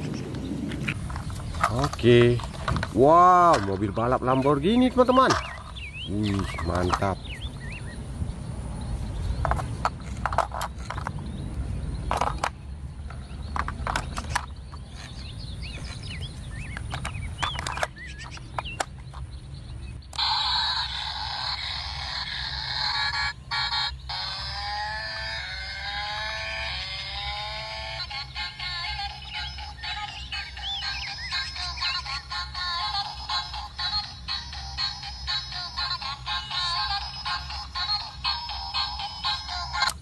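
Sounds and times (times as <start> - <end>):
plastic and metal clicks: 12.0 - 14.8, 16.6 - 19.3
electronic toy tune: 20.1 - 40.0.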